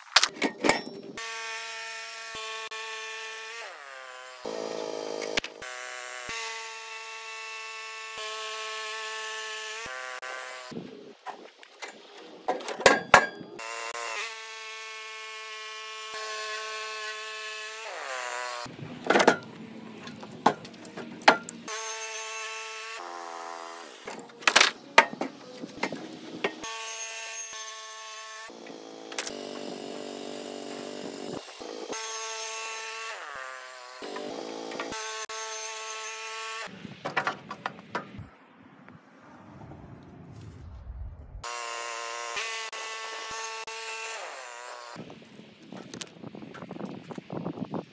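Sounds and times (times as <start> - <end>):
bandsaw mill engine humming: 0.8 - 10.9, 13.5 - 36.7.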